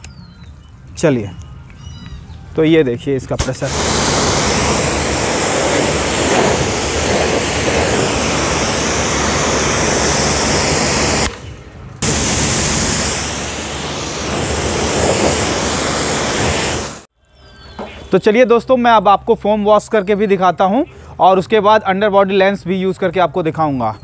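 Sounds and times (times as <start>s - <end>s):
pressure washer spraying: 3.4s - 17.1s.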